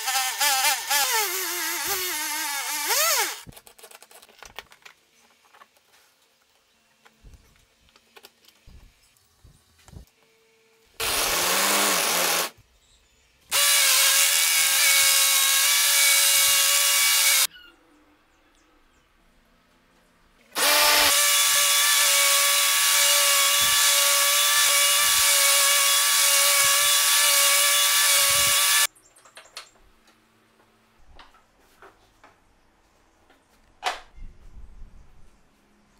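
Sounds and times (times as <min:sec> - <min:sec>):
angle grinder whining: 0:00.0 - 0:03.5, 0:11.0 - 0:12.6, 0:13.5 - 0:17.5, 0:20.6 - 0:28.9.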